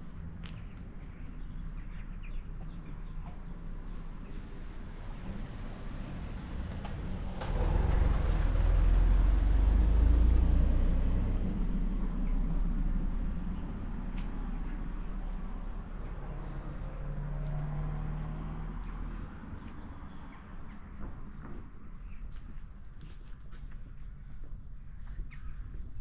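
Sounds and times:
car driving past: 4.6s - 21.2s.

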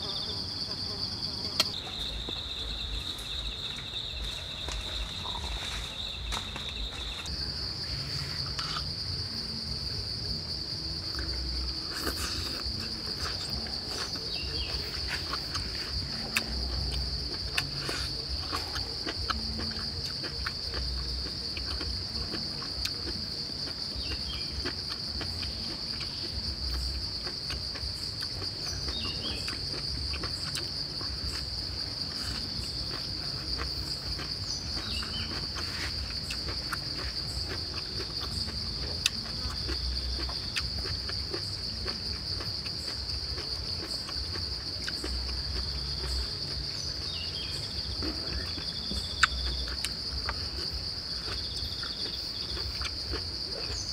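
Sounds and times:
insects droning: 0.0s - 53.9s.

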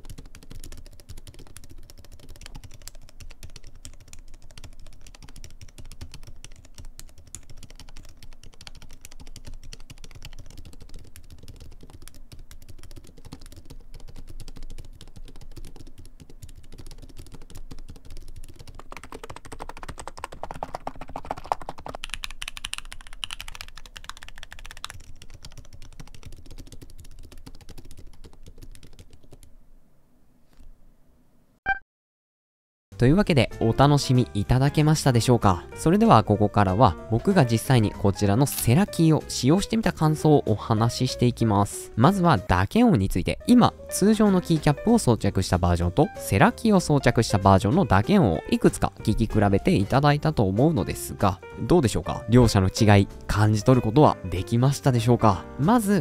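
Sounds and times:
muffled keyboard typing: 0.0s - 29.5s.

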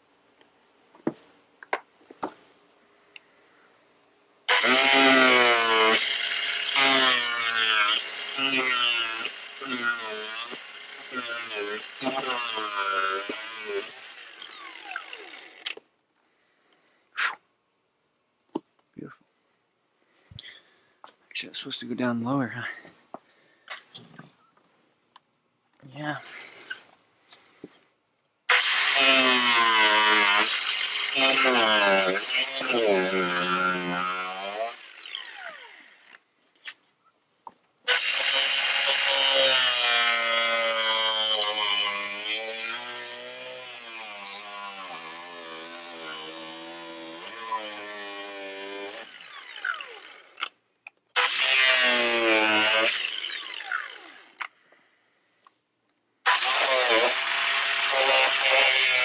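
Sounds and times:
electric power tool cutting: 4.5s - 15.8s, 28.5s - 36.2s, 37.9s - 50.5s, 51.2s - 54.5s, 56.3s - 59.0s.

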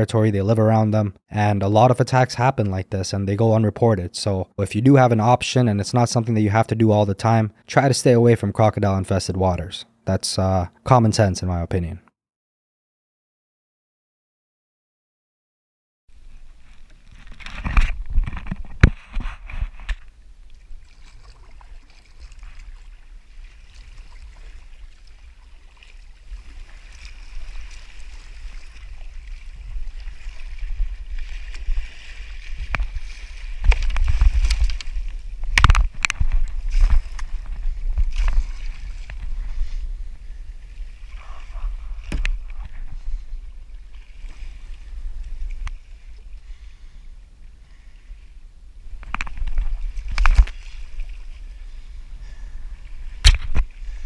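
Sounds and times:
water sloshing around kayak: 16.2s - 54.0s
wind rumbling on microphone: 16.2s - 54.0s
paddle splashing and knocking: 16.8s - 46.8s, 53.1s - 54.0s.

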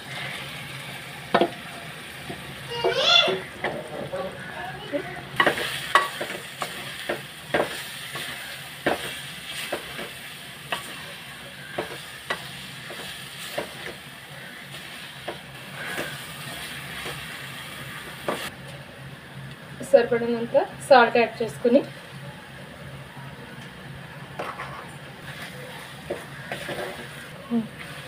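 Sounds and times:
food sizzling in oil: 0.0s - 18.6s, 24.2s - 28.0s.

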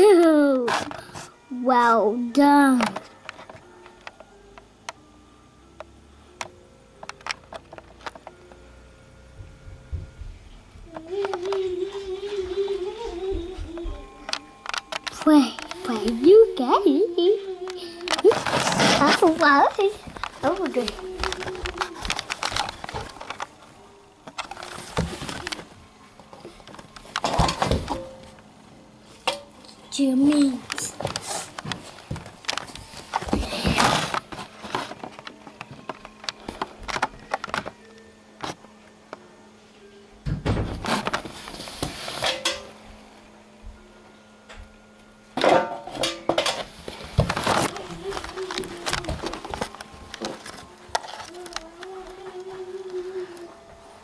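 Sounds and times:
bumps and rustling: 18.0s - 23.5s.

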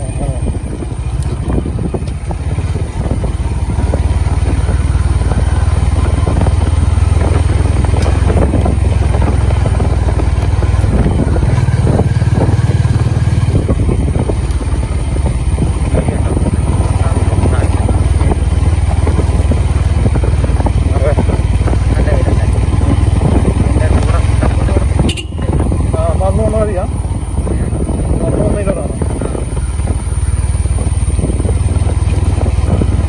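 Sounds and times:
motorcycle engine running: 0.0s - 33.0s
wind on microphone: 0.0s - 33.0s.

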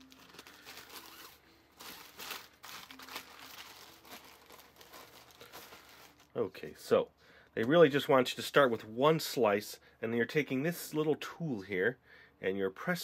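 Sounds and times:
plastic bread bag crinkling: 0.0s - 6.4s.

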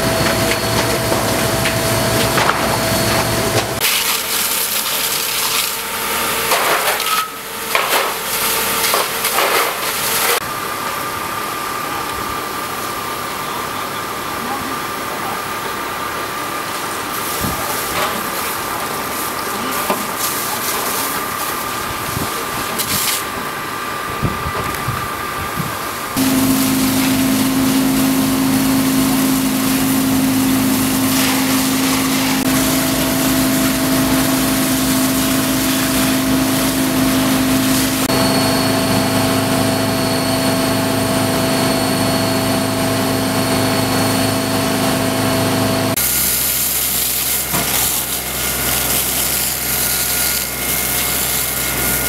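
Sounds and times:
pump engine running: 0.0s - 6.7s, 26.1s - 52.0s
water jets hissing: 26.2s - 38.2s.

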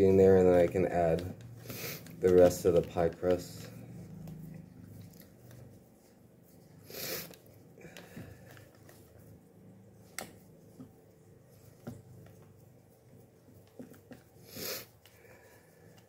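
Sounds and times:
hands pressing dough: 0.0s - 6.6s, 7.2s - 16.0s
breath through the nose: 6.8s - 8.4s, 14.4s - 15.9s.

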